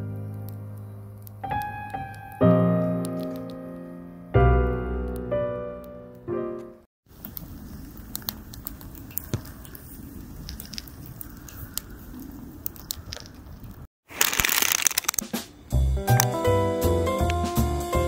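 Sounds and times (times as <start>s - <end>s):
fire crackling and popping: 7.1s - 15.3s.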